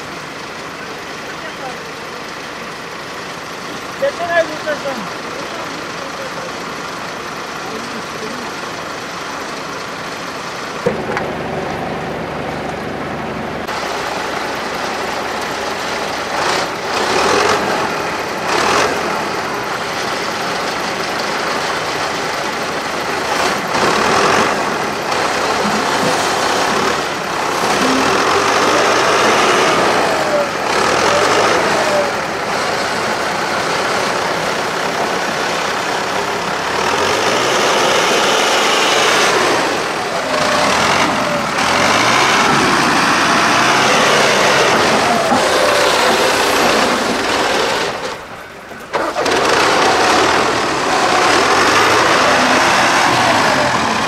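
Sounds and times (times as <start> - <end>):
diesel engine revving under load: 0.0 - 54.0
winch dragging logs: 10.8 - 54.0.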